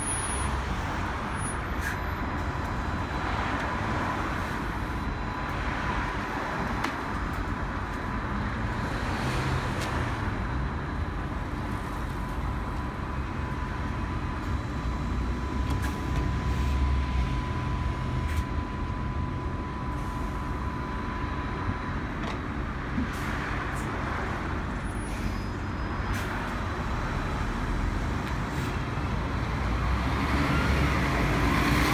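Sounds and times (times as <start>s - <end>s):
city bus passing close: 0.0s - 31.9s
street traffic: 0.0s - 31.9s
electric bus pulling away: 10.3s - 31.9s.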